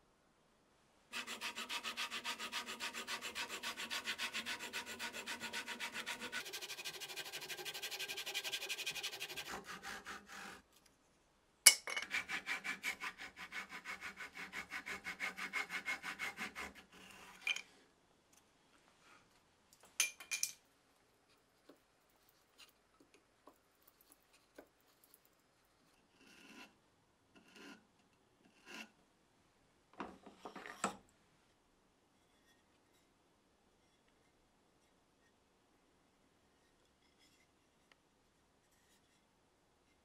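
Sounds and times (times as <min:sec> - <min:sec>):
pull saw cutting wood: 0:01.2 - 0:10.6
faint taps and scrapes: 0:21.0 - 0:26.8, 0:29.9 - 0:31.1, 0:36.6 - 0:40.0.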